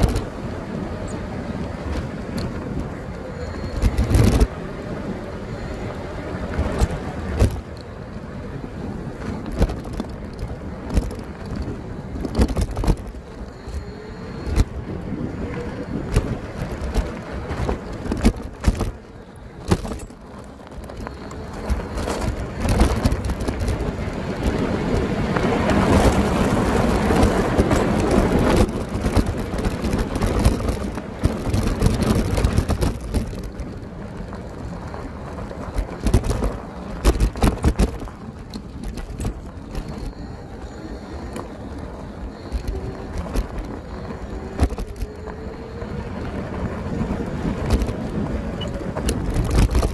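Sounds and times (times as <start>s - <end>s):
bike tyre riding noise: 0.0s - 49.9s
knocks and rattles from bumps: 9.1s - 13.8s, 15.5s - 40.3s, 46.3s - 49.9s.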